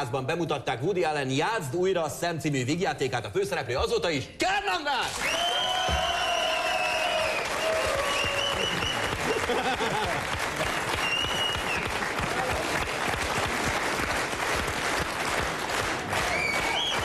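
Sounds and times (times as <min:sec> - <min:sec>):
audience applauding: 0:05.1 - 0:17.0.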